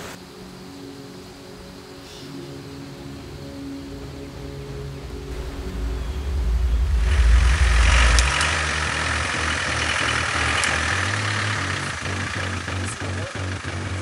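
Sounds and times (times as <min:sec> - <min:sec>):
off-road vehicle engine running: 0:05.0 - 0:14.0.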